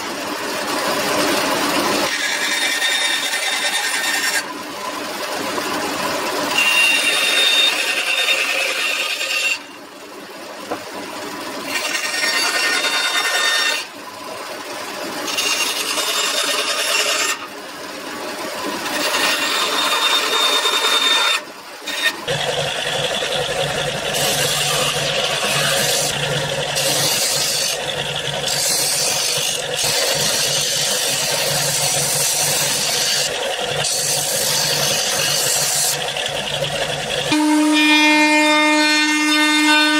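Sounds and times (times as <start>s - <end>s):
bandsaw cutting wood: 0.6s - 4.6s, 6.2s - 9.8s, 11.6s - 14.0s, 15.1s - 17.6s, 18.6s - 39.9s
disc sander humming: 18.6s - 39.9s.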